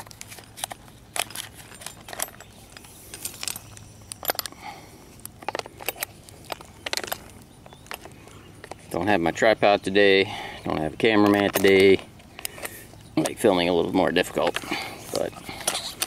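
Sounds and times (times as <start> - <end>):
metal hooks clinking on wire handles: 0.4 - 4.8, 10.7 - 16.0.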